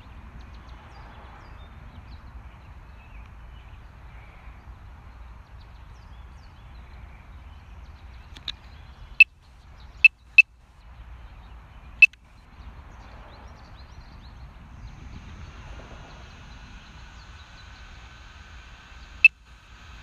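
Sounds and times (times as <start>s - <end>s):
low steady background noise: 0.0s - 20.0s.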